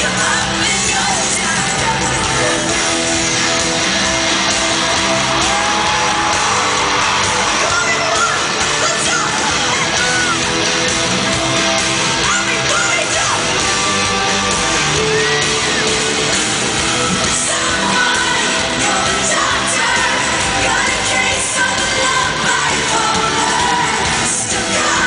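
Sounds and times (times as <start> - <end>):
woman singing: 0.0 - 2.9, 17.3 - 25.0
band playing loud: 0.0 - 25.0
crowd yelling and whooping: 0.1 - 25.0.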